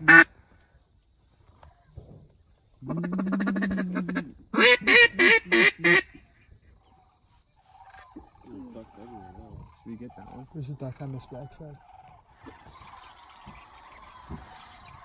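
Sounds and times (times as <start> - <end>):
duck call raspy note and quacks: 0.0 - 0.3, 2.8 - 6.2.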